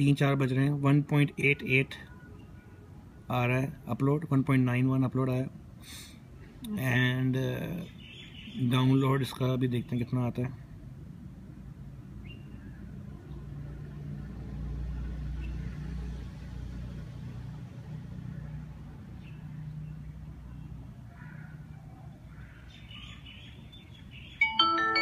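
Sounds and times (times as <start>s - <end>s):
low rumble of passing vehicle: 10.7s - 22.6s.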